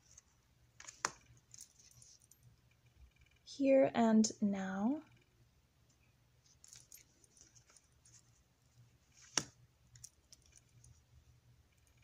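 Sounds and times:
cards clicking and scraping: 0.1s - 2.2s, 9.1s - 10.9s.

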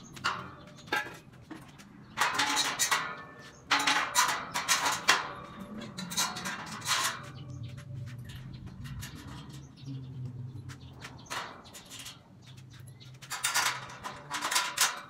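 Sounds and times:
sharp metal knocks: 0.0s - 7.6s
metal clanking and scraping: 0.0s - 9.9s, 10.5s - 15.0s.

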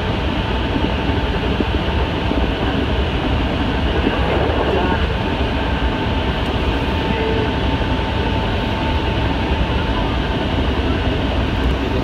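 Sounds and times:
faint steady whine: 0.0s - 12.0s
train running noise inside carriage: 0.0s - 12.0s.

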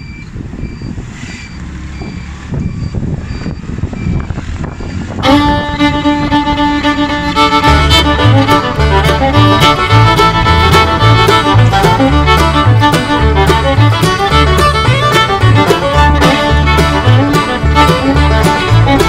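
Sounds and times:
faint repeating beep: 0.0s - 4.3s
motorcycle engine rumble: 0.0s - 19.0s
wind on microphone: 0.0s - 19.0s
music with bowed strings and beat: 5.2s - 19.0s.

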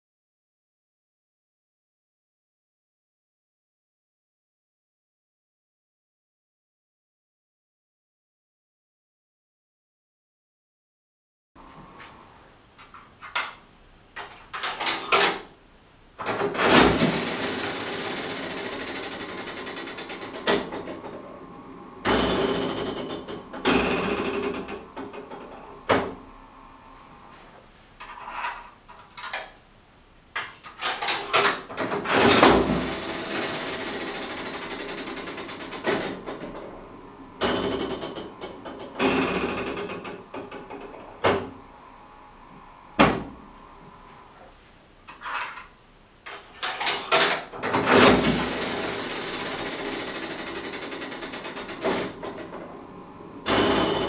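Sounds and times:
slot machine reels whirring: 16.6s - 24.8s, 32.1s - 39.7s, 47.8s - 54.0s.

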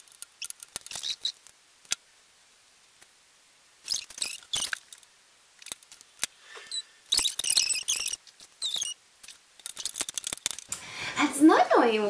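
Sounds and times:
small clicks: 0.0s - 2.0s, 3.9s - 10.8s.

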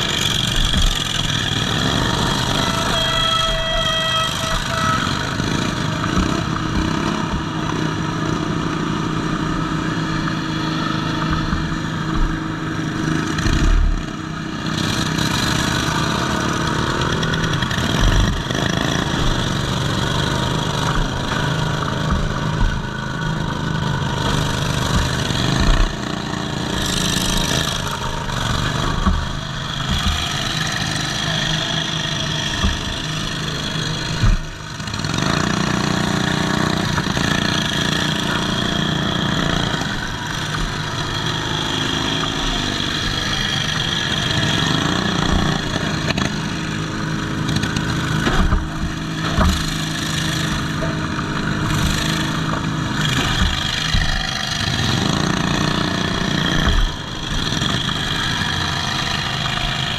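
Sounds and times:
lawn mower engine revving: 0.0s - 59.9s
chassis clunking on bumps: 16.4s - 59.9s.

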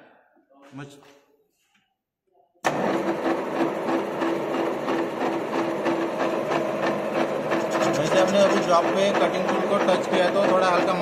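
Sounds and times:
lathe running with gear rattle: 2.7s - 11.0s.

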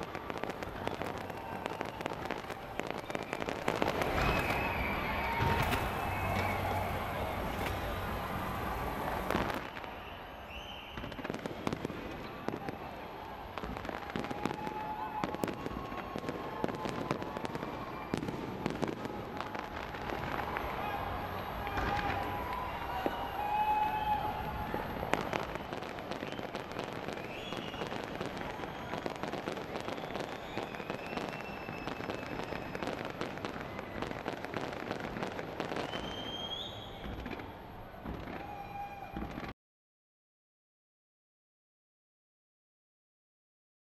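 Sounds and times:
fireworks bangs and crackles: 0.0s - 39.6s
faint thin whistles: 3.0s - 6.7s, 9.6s - 11.3s, 26.2s - 34.3s, 35.6s - 37.4s.

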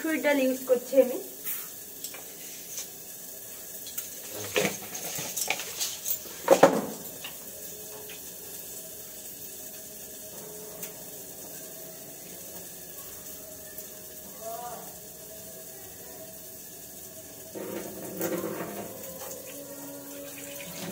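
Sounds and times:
water running from tap: 0.0s - 20.9s
metal dishes clattering in sink: 3.9s - 7.2s, 17.6s - 19.4s, 20.2s - 20.9s.

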